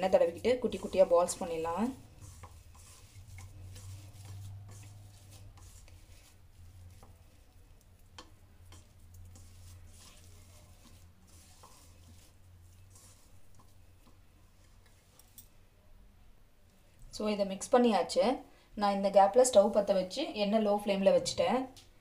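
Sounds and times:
hands kneading mashed potato: 0:00.0 - 0:15.5.

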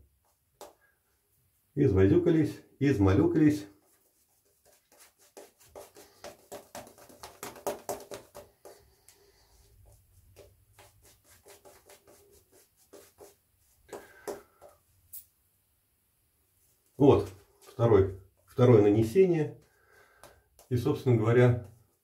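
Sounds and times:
shaving brush swishing lather: 0:03.7 - 0:14.7.

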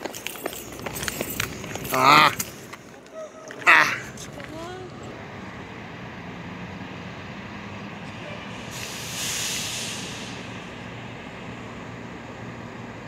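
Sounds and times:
engines idling: 0:00.0 - 0:13.0
street traffic hum: 0:00.0 - 0:13.0
hiss: 0:08.4 - 0:11.0.

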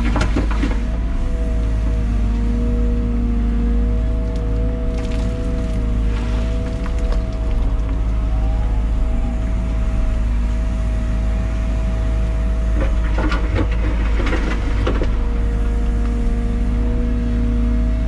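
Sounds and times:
diesel engine drone: 0:00.0 - 0:18.0
bucket scraping and rattling in dirt: 0:04.9 - 0:08.0, 0:12.8 - 0:16.2.

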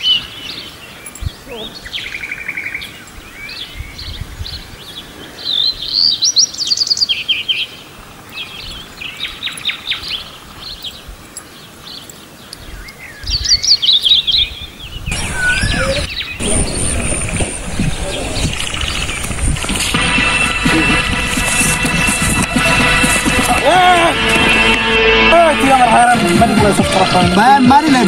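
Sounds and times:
songbirds chirping and trilling: 0:00.0 - 0:21.2
steady rushing noise: 0:15.1 - 0:28.0.

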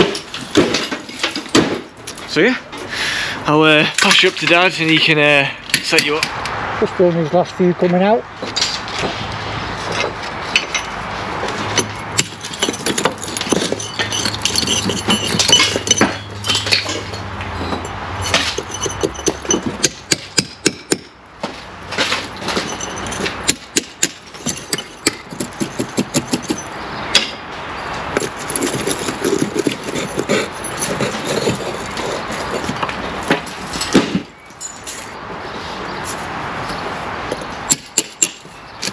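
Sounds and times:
hammer striking brickwork: 0:11.7 - 0:17.1, 0:17.7 - 0:27.4, 0:37.7 - 0:38.9
brick fragments clattering: 0:11.8 - 0:20.0, 0:22.0 - 0:27.4.

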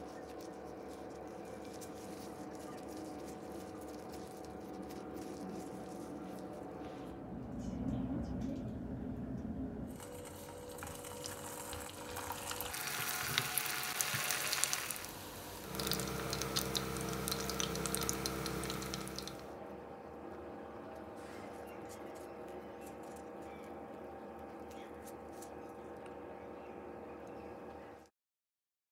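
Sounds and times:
food deep-frying in hot oil: 0:10.0 - 0:19.5.

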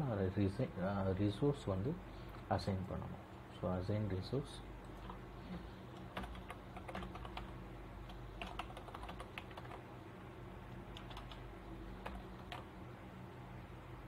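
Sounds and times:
computer keyboard typing: 0:04.8 - 0:05.2, 0:05.9 - 0:09.8, 0:10.9 - 0:12.7.

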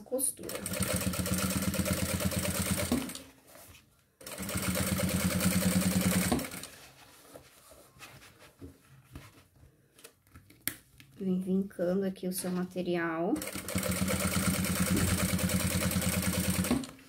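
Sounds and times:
industrial sewing machine running: 0:00.5 - 0:03.2, 0:04.2 - 0:06.7, 0:13.4 - 0:16.9
faint handling of material: 0:03.3 - 0:04.2, 0:06.6 - 0:12.7.

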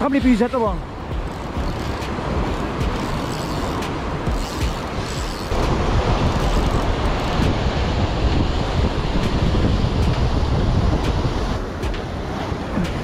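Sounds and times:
wind buffeting microphone: 0:00.0 - 0:13.0
surf breaking against rocks: 0:03.8 - 0:13.0.

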